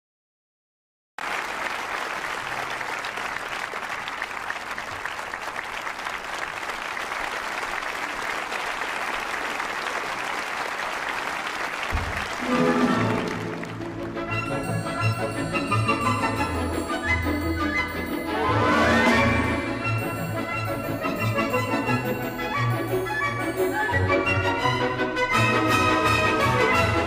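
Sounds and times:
audience applause: 1.2s - 24.0s
music: 12.4s - 27.0s.

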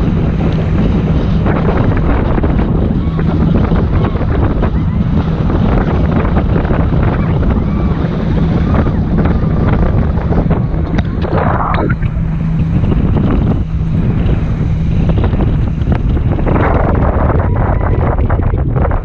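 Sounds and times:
low hum: 0.0s - 19.0s
wind buffeting microphone: 0.0s - 19.0s
water rushing: 6.3s - 18.6s
water splashing: 7.6s - 16.9s.

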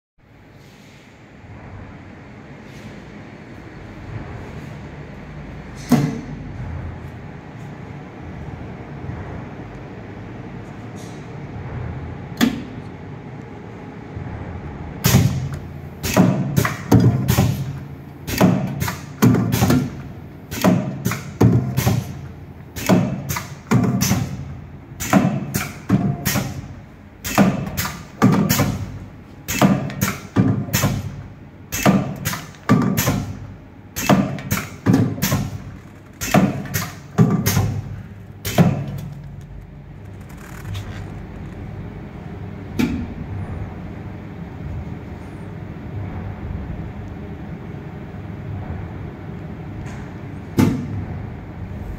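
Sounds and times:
machine low hum: 0.2s - 51.9s.

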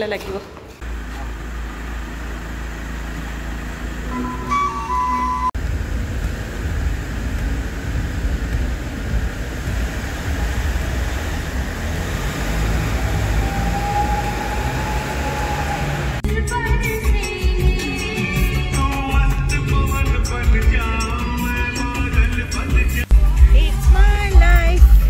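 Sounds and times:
car road and engine rumble: 0.0s - 16.9s
music: 4.1s - 5.6s, 16.2s - 25.0s.

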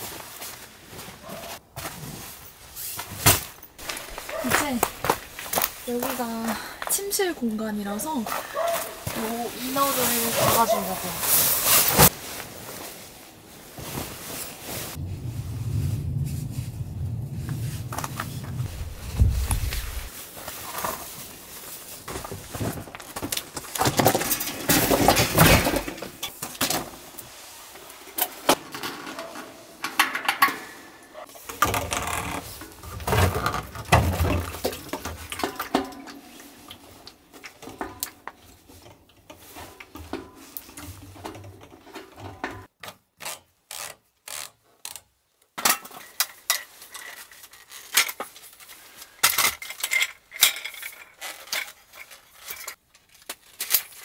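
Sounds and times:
tent fabric rustling: 0.0s - 7.3s, 7.9s - 23.6s.

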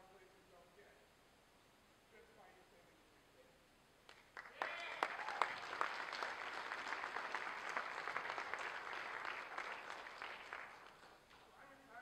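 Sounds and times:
audience applause: 4.4s - 11.4s.

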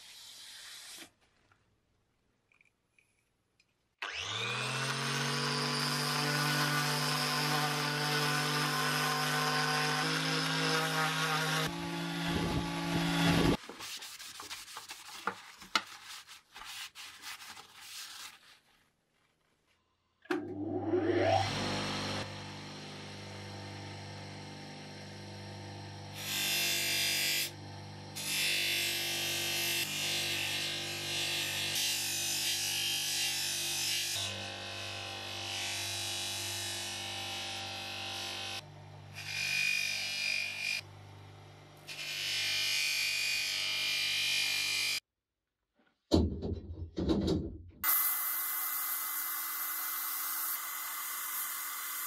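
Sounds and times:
bench polisher motor whining: 4.0s - 13.6s, 20.4s - 29.5s
electric power tool running: 4.0s - 13.6s, 20.4s - 31.1s, 47.8s - 52.0s
rubbing and handling of blade: 13.6s - 19.5s.

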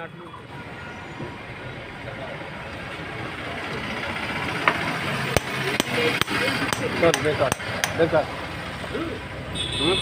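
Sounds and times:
hammer striking metal: 5.3s - 8.1s.

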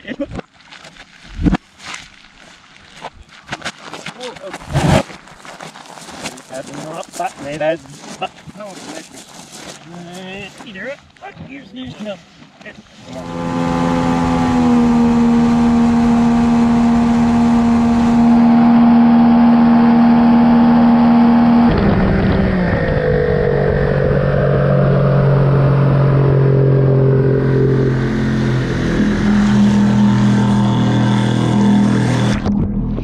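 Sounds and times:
outboard motor running: 13.0s - 33.0s.

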